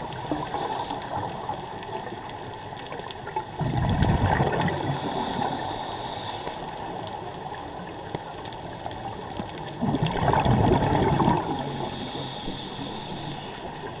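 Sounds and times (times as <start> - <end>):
scuba regulator breathing underwater: 0.0 - 1.3, 4.5 - 6.8, 10.4 - 14.0
steady hiss: 0.0 - 2.1, 4.7 - 7.5, 11.4 - 14.0
burst of exhaled bubbles: 3.6 - 5.4, 9.8 - 11.9.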